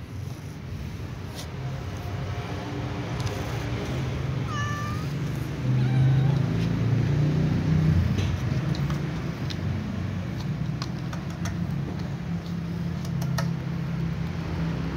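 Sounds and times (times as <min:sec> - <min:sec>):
cats meowing: 0:04.2 - 0:07.0.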